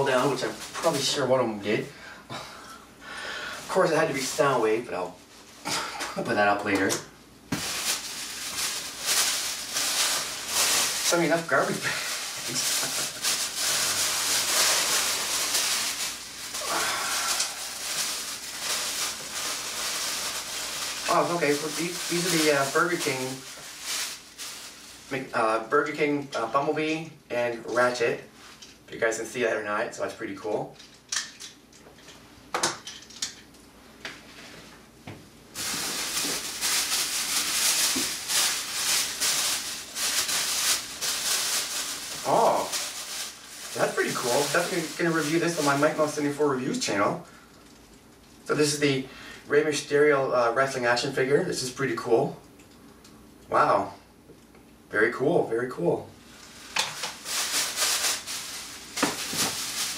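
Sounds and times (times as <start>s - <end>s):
plastic bags rustling and crinkling: 0.0s - 1.9s, 3.4s - 26.9s, 35.5s - 48.8s, 56.2s - 59.9s.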